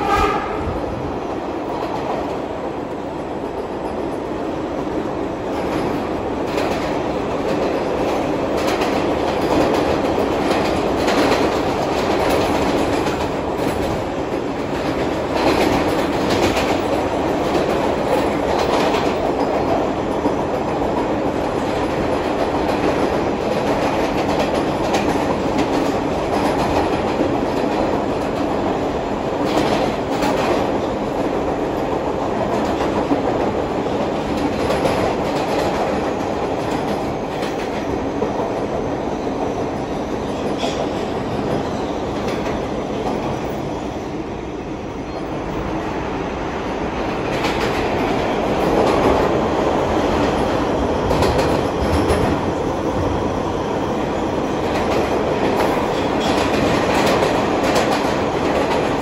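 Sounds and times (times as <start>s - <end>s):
subway train wheels rumbling: 0.0s - 59.0s.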